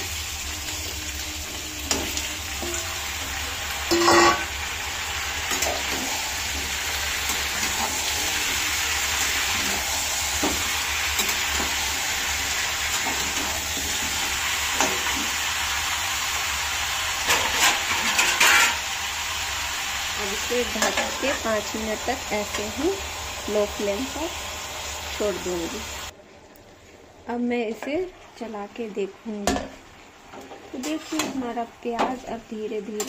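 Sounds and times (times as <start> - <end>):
food sizzling in oil: 0.0 - 26.2, 27.2 - 33.0
ladle scraping and knocking pan: 3.9 - 4.5.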